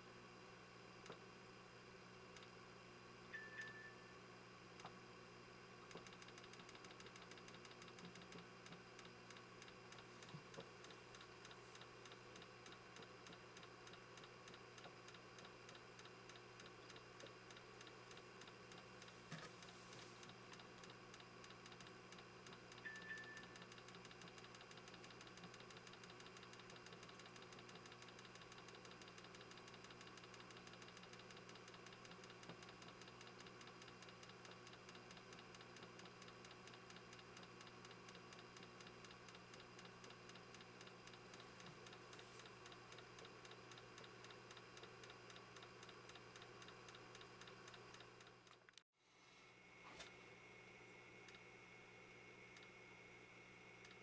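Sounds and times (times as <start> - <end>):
low electrical hum: 0.0 - 54.0
gas bubbling ticks: 5.9 - 48.7.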